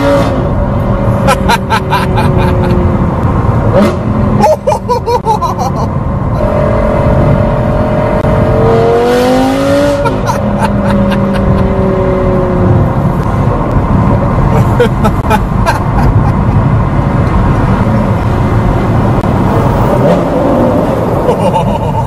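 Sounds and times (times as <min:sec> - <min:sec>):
sports car engine revving: 0:00.0 - 0:04.4, 0:06.3 - 0:14.5.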